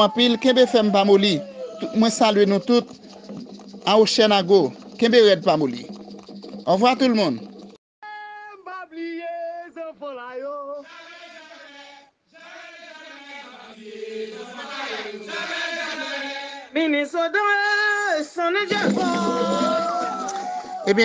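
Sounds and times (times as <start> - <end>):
voices chanting a song: 10.7 - 16.8.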